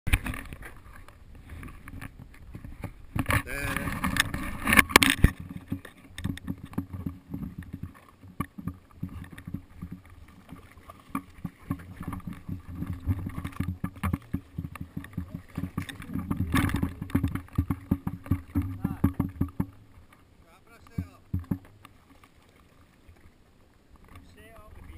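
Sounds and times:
water sloshing against boat: 0:00.1 - 0:24.9
camera pole knocks and rubbing: 0:01.6 - 0:10.1, 0:11.1 - 0:19.8, 0:20.9 - 0:22.0.

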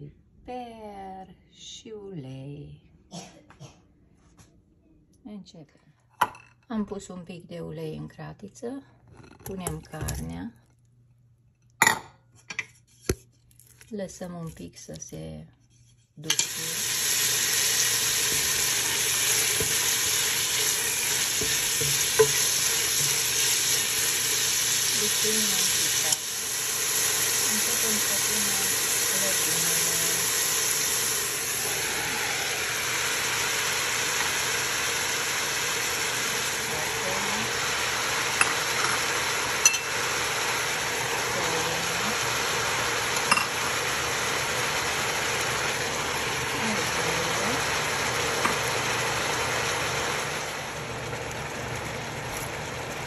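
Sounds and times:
meat sizzling in oil: 0:16.3 - 0:53.0.

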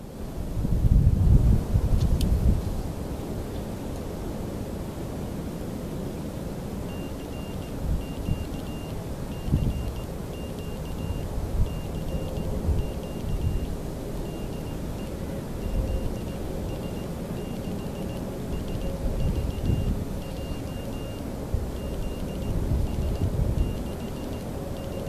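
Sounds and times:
wind buffeting microphone: 0:00.5 - 0:02.9, 0:09.4 - 0:10.0, 0:10.9 - 0:14.1, 0:18.8 - 0:20.5, 0:21.4 - 0:23.8
morse code beeps: 0:06.9 - 0:25.0.

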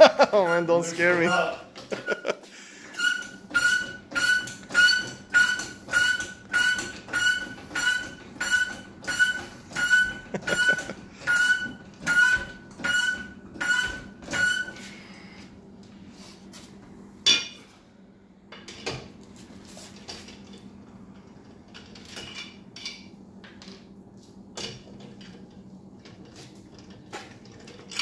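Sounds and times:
wrench squeaking on a bolt: 0:02.9 - 0:10.2.

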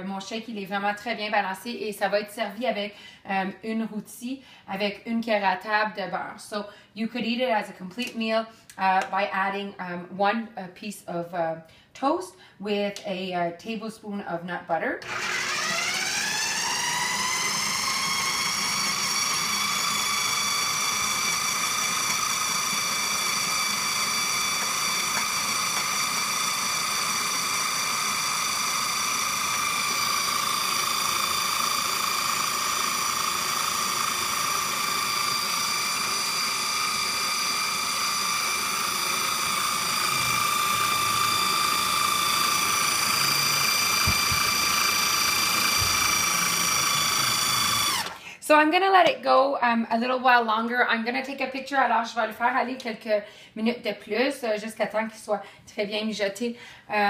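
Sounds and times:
food processor motor whining: 0:15.0 - 0:48.3.

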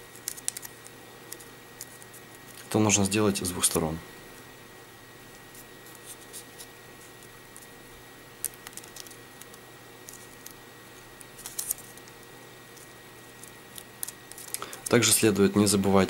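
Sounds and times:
paper crackles: 0:11.2 - 0:12.2
paper rustling and crinkling: 0:11.3 - 0:12.1.

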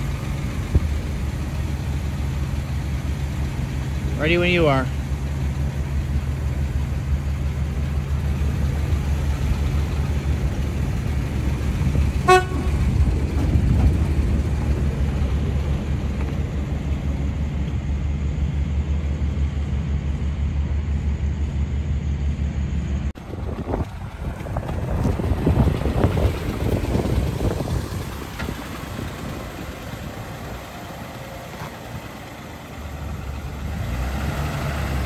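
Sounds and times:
truck engine driving off: 0:00.0 - 0:35.0
short horn toot: 0:12.2 - 0:12.9.

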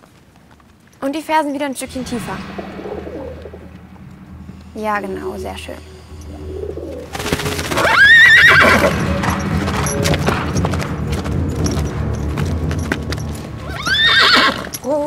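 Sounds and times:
hooves pounding in sand: 0:07.2 - 0:15.0
horse whinnying: 0:07.8 - 0:09.0, 0:13.6 - 0:14.8.

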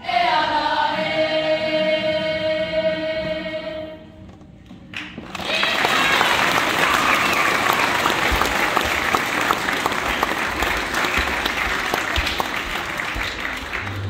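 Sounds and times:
audience applauding: 0:04.9 - 0:14.0.

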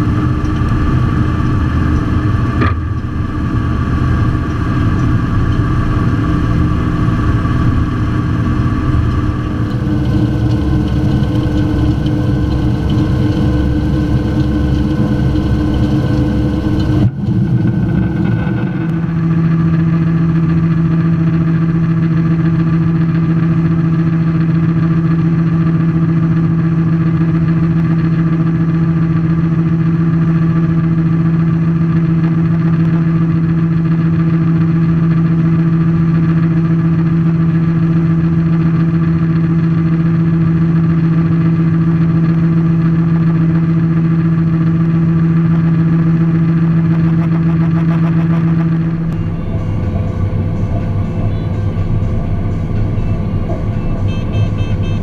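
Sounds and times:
combine harvester humming: 0:00.0 - 0:55.0.

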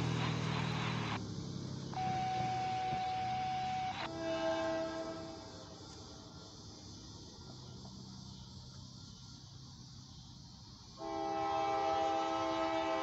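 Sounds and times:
locomotive air horn: 0:02.0 - 0:05.8, 0:11.0 - 0:13.0.

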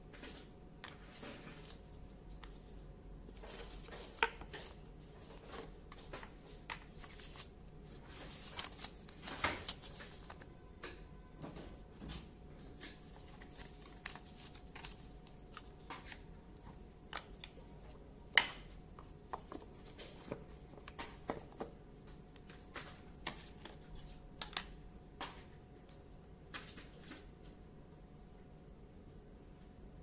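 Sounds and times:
paper and cardboard rustling: 0:03.3 - 0:10.4, 0:12.7 - 0:16.3.

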